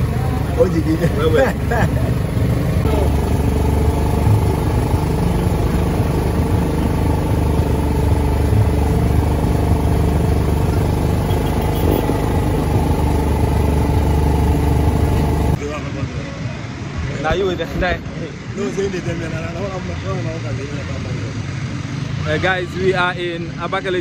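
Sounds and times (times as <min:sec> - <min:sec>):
engine running: 0:00.0 - 0:15.6.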